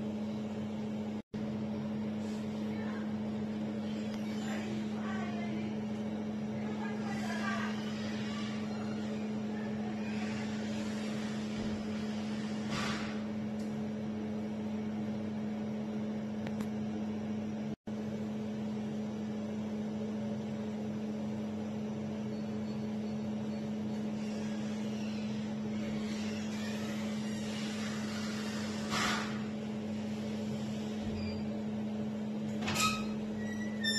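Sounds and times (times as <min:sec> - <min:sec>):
steady machine hum: 0:00.0 - 0:33.9.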